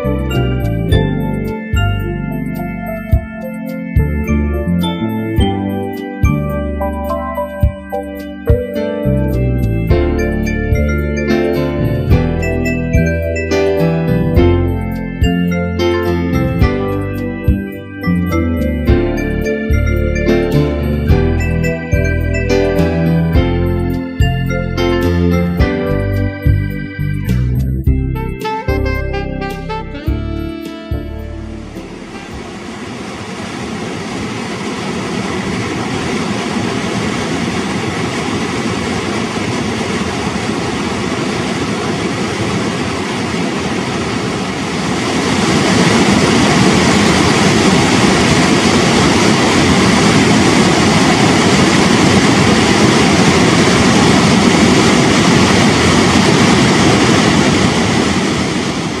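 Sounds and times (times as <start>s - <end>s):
waterfall rushing and rumbling: 31.8s - 59.0s.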